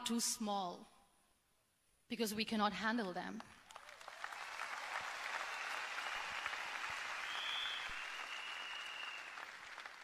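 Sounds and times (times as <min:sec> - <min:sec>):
large audience applauding: 0:03.6 - 0:10.0.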